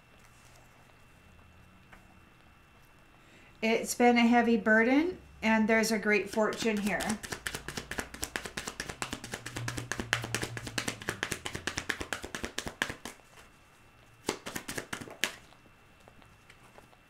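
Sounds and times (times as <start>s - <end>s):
fast light taps: 6.3s - 13.2s.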